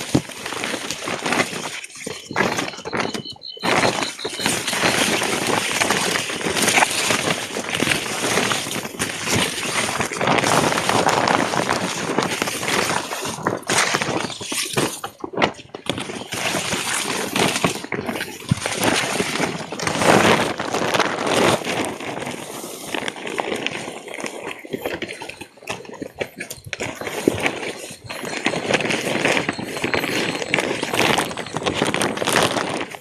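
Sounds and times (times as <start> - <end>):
footsteps: 24.7 - 33.0.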